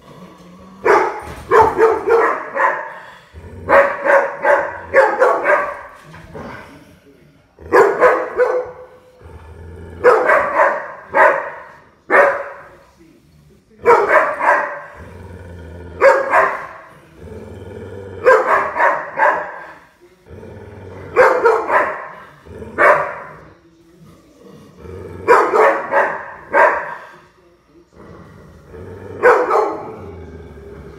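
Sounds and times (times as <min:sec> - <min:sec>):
dog growling: 0:00.0 - 0:30.9
dog barking: 0:00.8 - 0:03.0, 0:03.7 - 0:06.0, 0:07.7 - 0:09.0, 0:10.0 - 0:12.8, 0:13.8 - 0:15.0, 0:16.0 - 0:16.9, 0:18.2 - 0:19.8, 0:21.1 - 0:22.2, 0:22.8 - 0:23.4, 0:25.3 - 0:27.1, 0:29.2 - 0:30.0.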